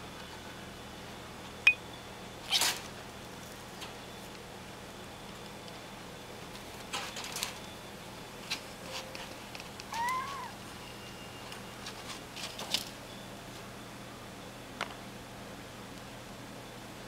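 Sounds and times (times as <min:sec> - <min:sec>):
kitten meow: 0:09.9 - 0:10.6.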